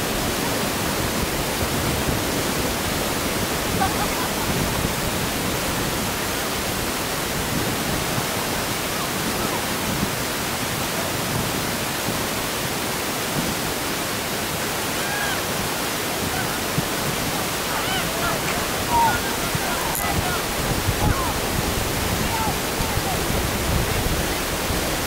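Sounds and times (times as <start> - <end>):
distant voices calling out: 14.8 - 24.2.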